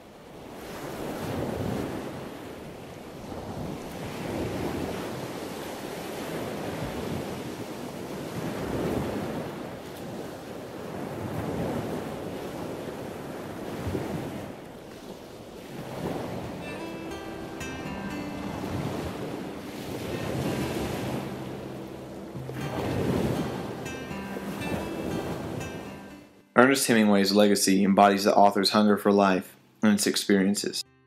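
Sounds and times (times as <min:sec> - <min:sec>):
sea waves washing in: 0:00.0 - 0:27.1
wind on microphone: 0:00.4 - 0:16.6.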